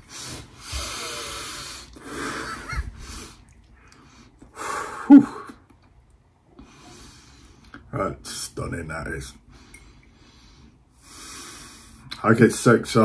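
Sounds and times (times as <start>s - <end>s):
man breathing in through the nose: 0.0s - 5.0s, 6.6s - 7.8s, 9.5s - 12.1s.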